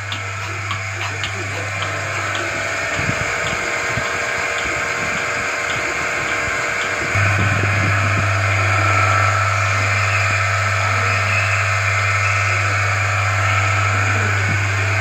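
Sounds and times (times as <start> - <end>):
pulsator clicking: 0.0 - 9.0
vacuum pump hum and hiss: 0.0 - 15.0.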